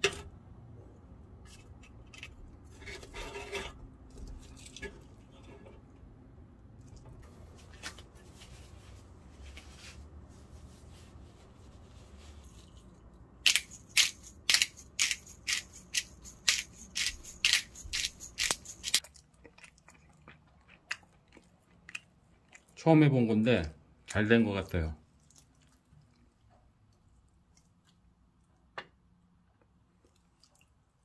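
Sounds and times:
pepper grinder crunching: 0:13.4 - 0:19.0.

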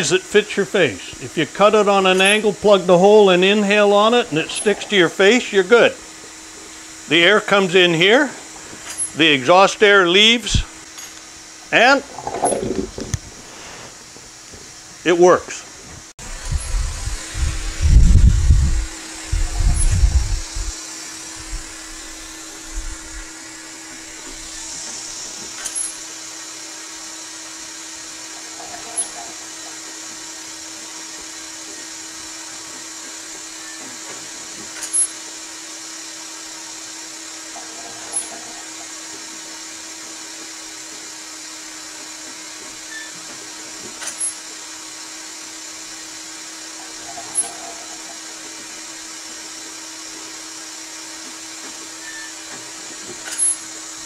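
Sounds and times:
ventilator mechanical hum: 0:00.0 - 0:54.0.

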